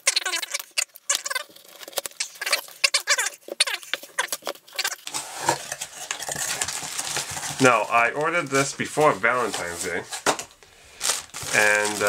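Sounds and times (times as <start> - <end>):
packing rustling: 0.2 - 12.0
cardboard box being torn open: 4.8 - 8.6, 11.1 - 12.0.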